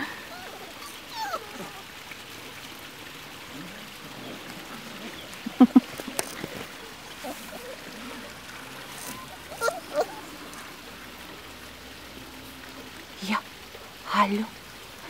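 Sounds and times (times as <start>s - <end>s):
puppy yips: 0.3s - 1.8s, 9.0s - 10.3s
puppy whining: 0.3s - 1.9s, 7.2s - 10.8s.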